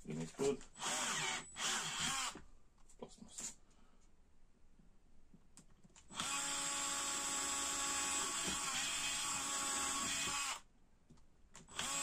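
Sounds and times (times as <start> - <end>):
electric drill whining: 0.8 - 2.4, 6.1 - 10.6, 11.7 - 12.0.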